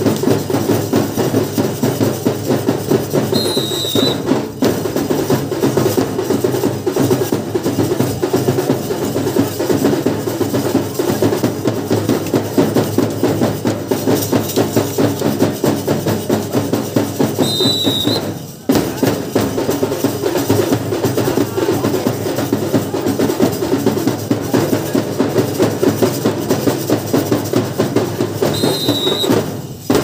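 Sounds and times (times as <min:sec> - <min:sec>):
drums beating fast rhythm: 0:00.0 - 0:30.0
whistle blast: 0:03.3 - 0:04.3, 0:17.4 - 0:18.4, 0:28.4 - 0:29.4.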